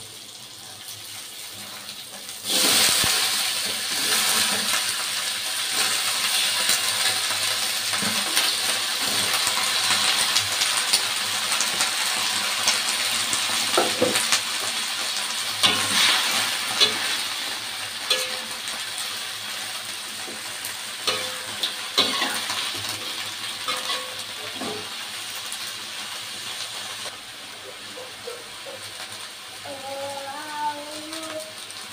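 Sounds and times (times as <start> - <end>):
cabbage sizzling in a wok: 0.0 - 31.9
spatula scraping a pan: 15.6 - 18.5, 21.0 - 24.9.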